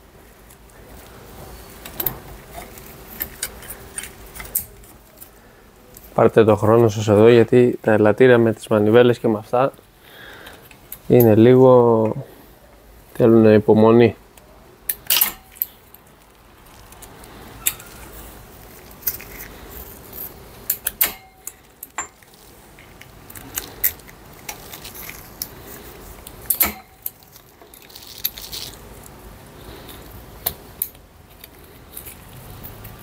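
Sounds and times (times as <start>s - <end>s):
sharper metal clacks: 20.7s - 22.2s, 26.5s - 27.2s.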